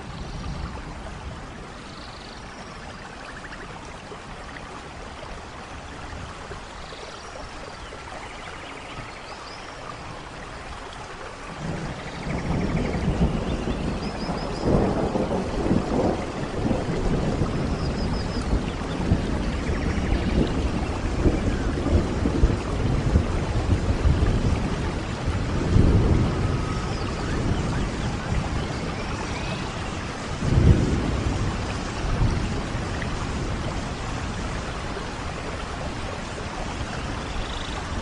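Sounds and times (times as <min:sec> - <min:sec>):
steady rain: 0:00.0 - 0:38.0
rolling thunder: 0:11.5 - 0:38.0.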